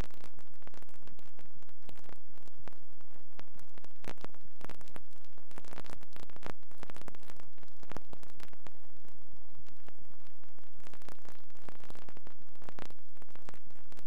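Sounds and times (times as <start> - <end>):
crackling clicks: 0.0 - 14.0
static hiss: 0.0 - 14.0.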